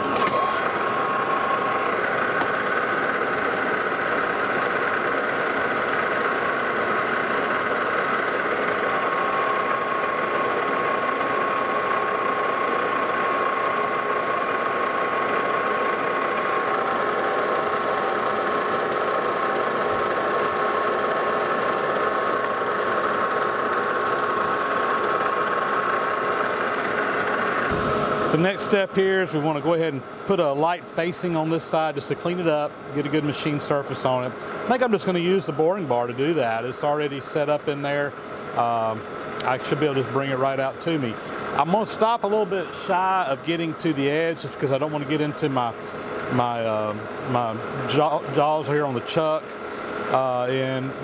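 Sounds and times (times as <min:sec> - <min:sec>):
metal lathe whine: 0:00.0 - 0:51.0.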